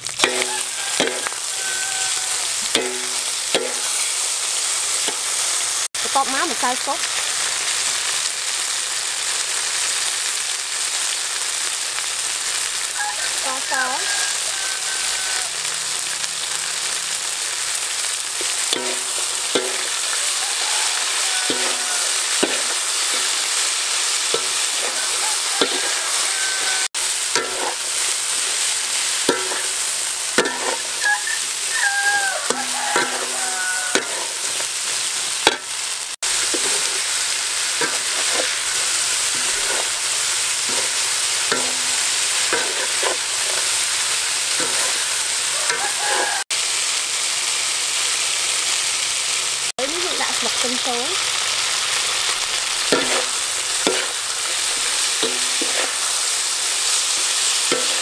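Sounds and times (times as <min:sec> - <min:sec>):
metal ladle scraping a pan: 0:00.0 - 0:04.3, 0:16.5 - 0:46.4, 0:51.8 - 0:58.0
grasshoppers sizzling in a wok: 0:00.0 - 0:58.0
metal on metal squeaks: 0:00.2 - 0:04.0, 0:18.8 - 0:23.4, 0:24.4 - 0:27.8, 0:30.4 - 0:34.7, 0:37.8 - 0:40.0, 0:44.6 - 0:46.4.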